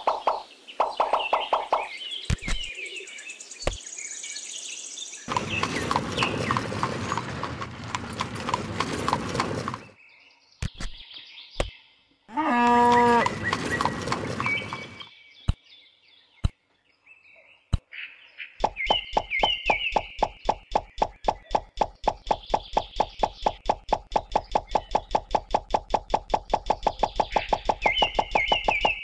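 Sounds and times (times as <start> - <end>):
dense clattering: 5.3 - 9.9
loud animal call: 12.3 - 13.5.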